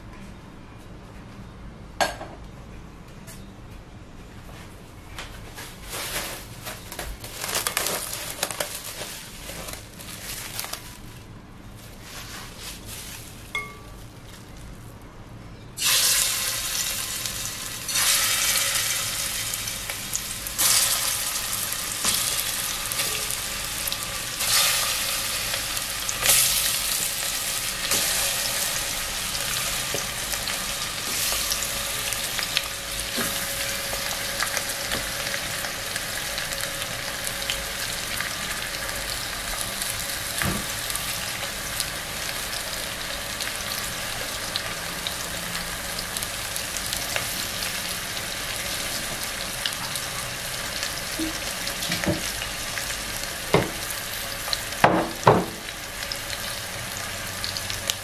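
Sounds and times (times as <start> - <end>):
chicken wings sizzling in oil: 15.8 - 58.0.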